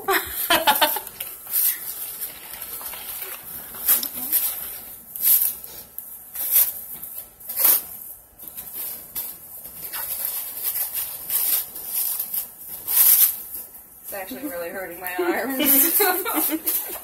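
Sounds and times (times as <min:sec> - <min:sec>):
plastic wrap crinkling: 0:00.3 - 0:14.3, 0:15.4 - 0:17.0.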